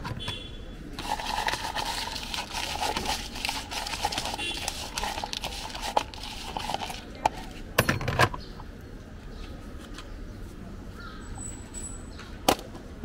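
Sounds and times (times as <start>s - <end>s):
metal spoon clattering in plastic cup: 1.0s - 8.1s.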